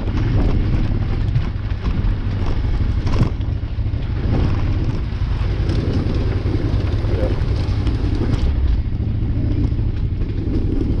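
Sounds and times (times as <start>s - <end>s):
motorcycle engine drone: 0.0s - 11.0s
wind noise on microphone: 0.0s - 11.0s.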